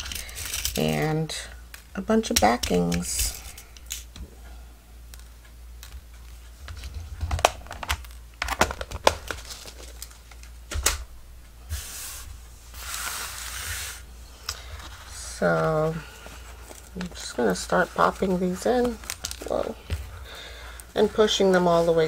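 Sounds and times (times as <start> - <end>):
packaging crinkling: 6.8 - 10.6, 18.8 - 19.6.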